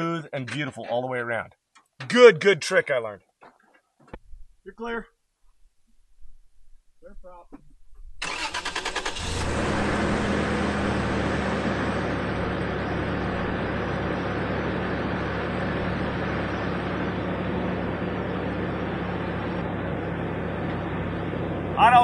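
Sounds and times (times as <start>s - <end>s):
car engine idling: 8.2s - 22.0s.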